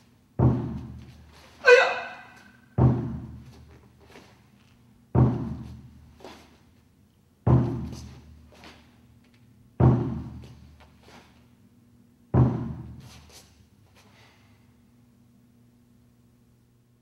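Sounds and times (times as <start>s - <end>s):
deep booming drum beats: 0.4s - 1.0s, 2.8s - 3.4s, 5.2s - 5.7s, 7.5s - 8.0s, 9.8s - 10.4s, 12.4s - 13.0s.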